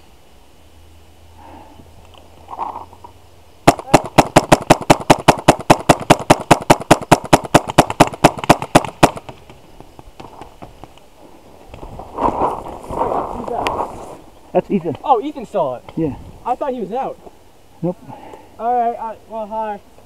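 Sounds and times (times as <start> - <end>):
paintball marker firing rapidly: 3.7 - 9.6.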